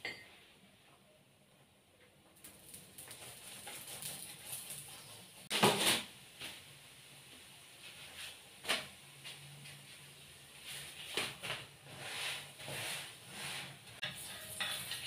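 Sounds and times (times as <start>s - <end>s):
oil crackling on a pan: 2.4s - 5.7s, 14.0s - 15.0s.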